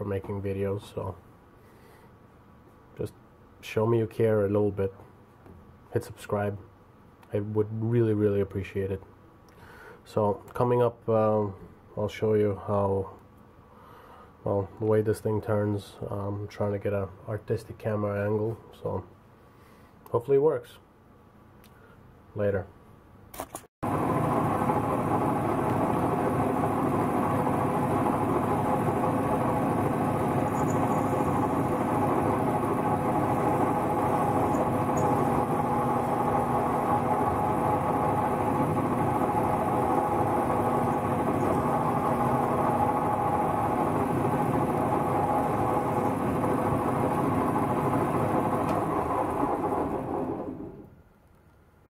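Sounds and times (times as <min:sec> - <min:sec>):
metal lathe whirring: 0:23.9 - 0:50.8.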